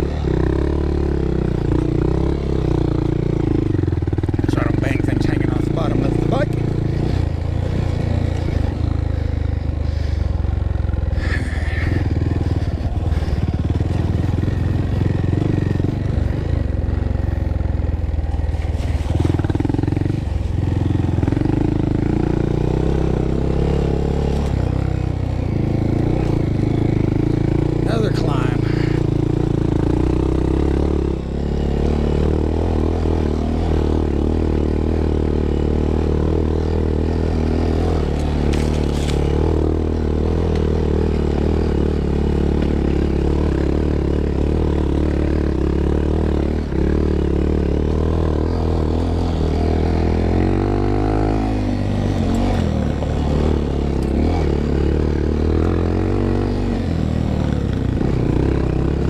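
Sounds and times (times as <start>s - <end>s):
small motorcycle engine running: 0.0s - 59.0s
bike clattering over rough ground: 38.2s - 39.4s.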